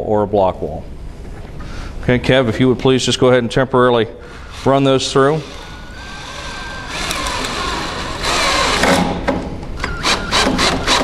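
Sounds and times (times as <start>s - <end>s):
cordless drill driving screws into wood: 5.4s - 11.0s.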